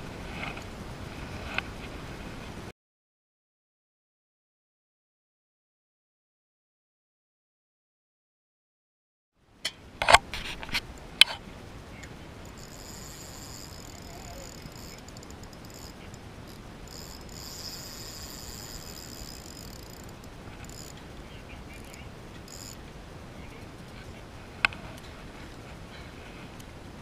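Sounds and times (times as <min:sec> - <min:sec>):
wind and water hiss: 0:00.0 - 0:02.7, 0:09.4 - 0:27.0
insects buzzing: 0:11.4 - 0:25.1.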